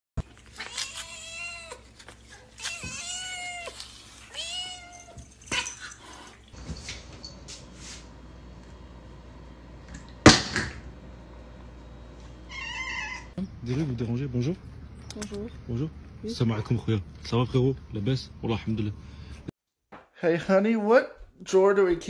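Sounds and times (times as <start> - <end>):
cat meowing: 2.4 - 5.2, 12.5 - 13.4.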